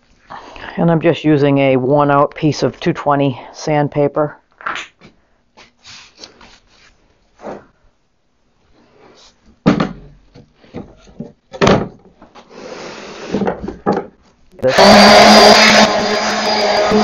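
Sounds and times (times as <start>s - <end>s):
wooden cabinet knocks and thumps: 9.6s - 12.2s, 13.4s - 14.2s.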